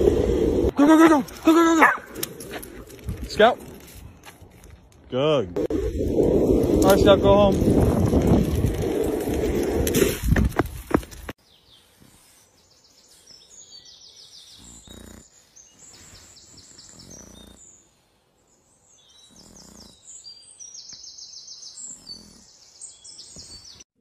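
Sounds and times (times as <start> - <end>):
wind rumbling on microphone: 0.0 - 0.7, 5.5 - 11.3
birds chirping trills: 11.4 - 23.9.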